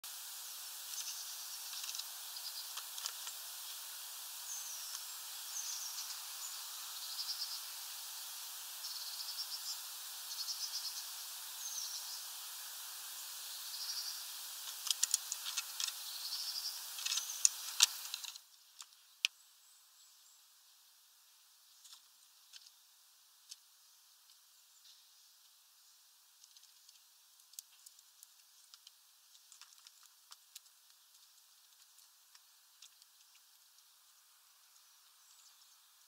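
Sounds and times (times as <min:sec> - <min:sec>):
steady hiss: 0:00.0 - 0:36.0
bird chirping: 0:00.9 - 0:18.2, 0:34.6 - 0:36.0.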